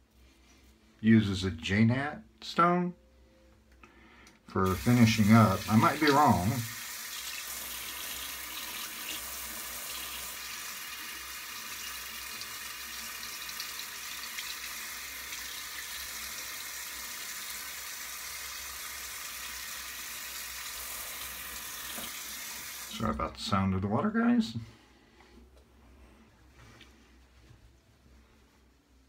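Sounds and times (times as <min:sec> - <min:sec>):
tap running into a sink: 0:21.8 - 0:22.4.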